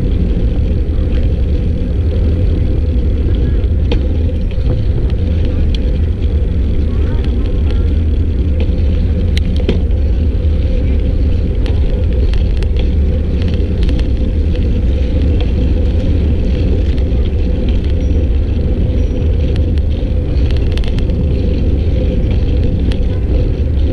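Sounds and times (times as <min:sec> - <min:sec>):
wind buffeting microphone: 0:00.0 - 0:23.9
light clicks and rattles: 0:03.1 - 0:23.9.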